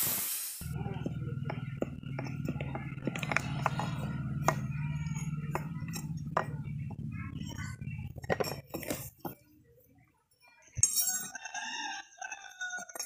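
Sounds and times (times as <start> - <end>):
steady low hum: 0.6 - 9.1
iron pieces clinking: 10.8 - 11.3.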